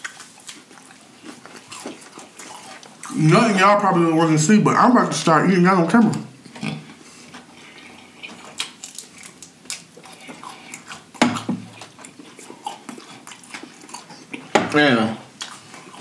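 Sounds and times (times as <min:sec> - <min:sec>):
chewing crispy fried shrimp: 0:00.0 - 0:04.4, 0:06.1 - 0:16.0
lip smacks: 0:07.7 - 0:14.5.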